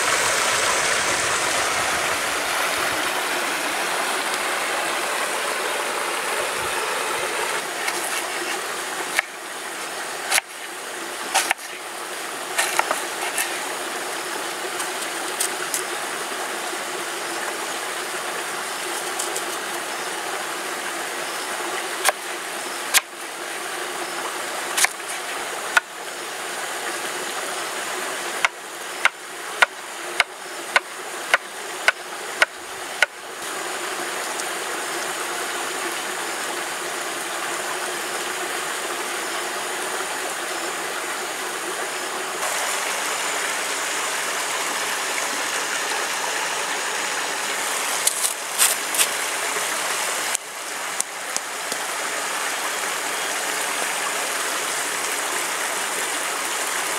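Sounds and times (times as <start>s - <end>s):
stream running: 0.0s - 56.9s
knife chopping on wooden board: 10.3s - 10.5s, 11.4s - 11.7s, 12.6s - 13.5s.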